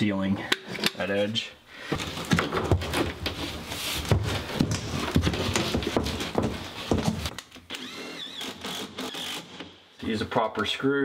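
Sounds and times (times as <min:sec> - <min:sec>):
board knocking and thudding: 0:04.0 - 0:07.3.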